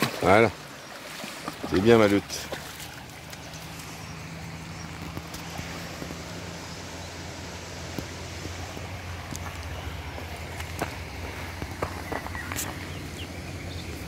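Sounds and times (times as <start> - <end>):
dog splashing through shallows: 0.0 - 6.8
river water over stones: 0.0 - 14.0.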